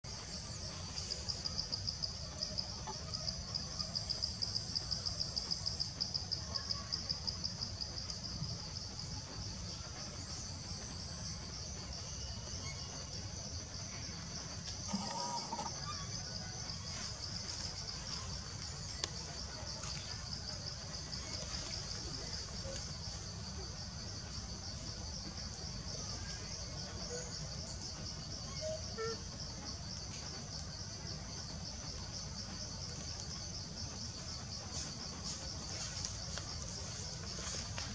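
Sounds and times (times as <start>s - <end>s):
insects chirring: 0.1s - 37.9s.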